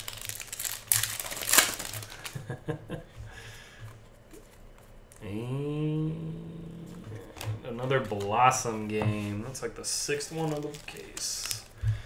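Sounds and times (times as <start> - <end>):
cards rustling: 0.0 - 2.4, 7.2 - 11.8
foil wrapper crinkling: 0.0 - 2.5, 10.1 - 11.8.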